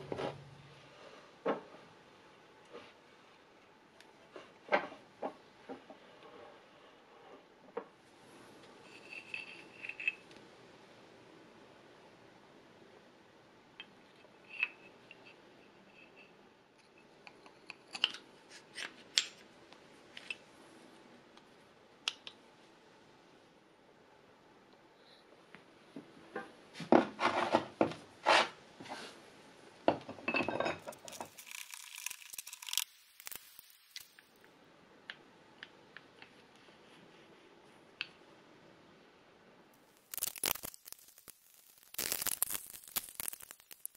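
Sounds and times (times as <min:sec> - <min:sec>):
steel parts clinking and rattling: 0:08.9 - 0:10.3, 0:30.4 - 0:34.2.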